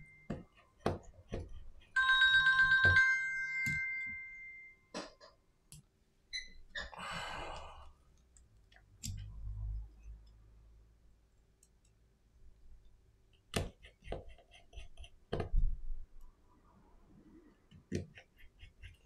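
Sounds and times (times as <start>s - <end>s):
electronic ringing tone: 2.0s - 4.8s.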